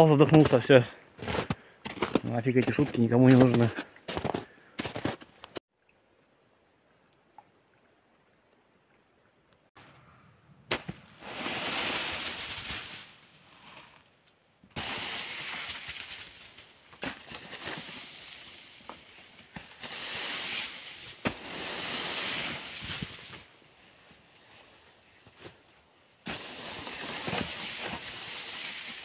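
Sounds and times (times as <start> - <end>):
snow sliding off roof: 10.7 - 14.0, 14.8 - 25.6, 26.2 - 29.0.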